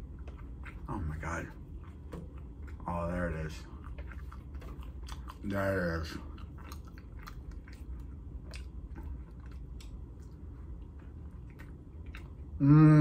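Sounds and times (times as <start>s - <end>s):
wet chewing mouth smacks: 0.0s - 12.6s
person humming: 12.6s - 13.0s.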